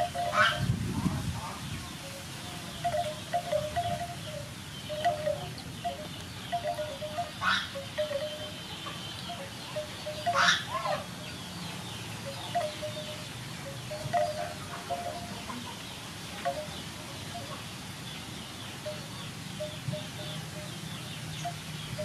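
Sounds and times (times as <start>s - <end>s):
light chime-like tones: 0.0s - 0.7s, 2.8s - 10.7s, 12.3s - 15.6s, 16.4s - 17.6s.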